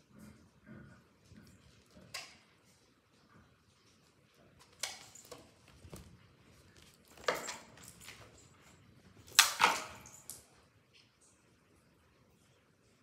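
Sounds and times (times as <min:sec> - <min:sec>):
toy clattering on tiled floor: 0:04.4 - 0:10.5.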